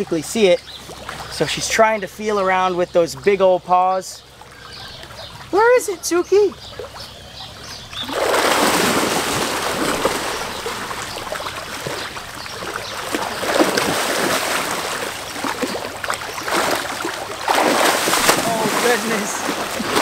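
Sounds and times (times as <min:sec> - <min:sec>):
animal splashing through water: 0:07.8 - 0:20.0.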